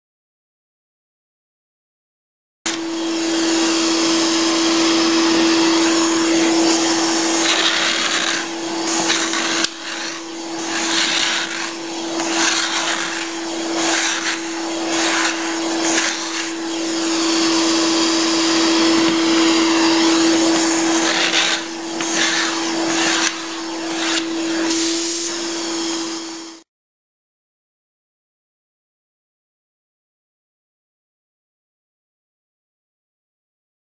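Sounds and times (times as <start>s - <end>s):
vacuum cleaner running: 2.7s - 26.7s
blade scraping paint from wood: 5.9s - 17.5s, 18.6s - 24.8s.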